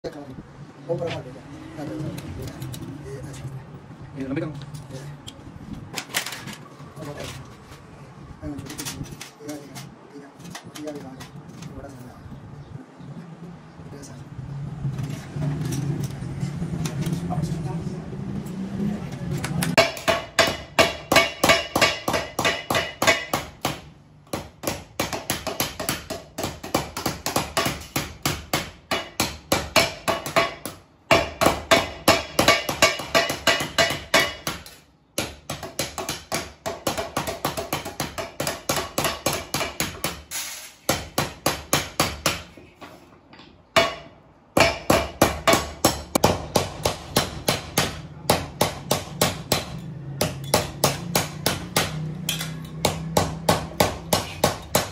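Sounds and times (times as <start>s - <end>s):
mallets striking sheet metal: 19.6s - 42.6s, 43.7s - 54.9s.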